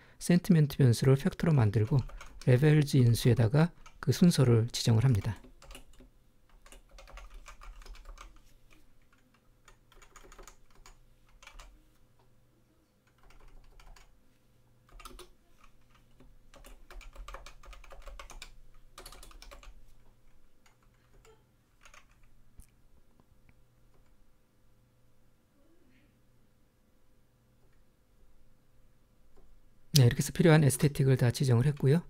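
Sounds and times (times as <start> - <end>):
computer keyboard typing: 1.7 - 11.8, 13.1 - 14.2, 14.9 - 19.8, 20.6 - 22.4.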